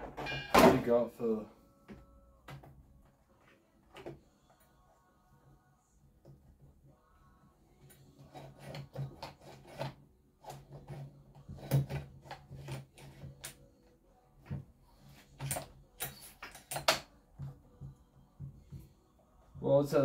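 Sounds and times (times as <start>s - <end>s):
hard plastic rubbing: 7.9s - 13.6s.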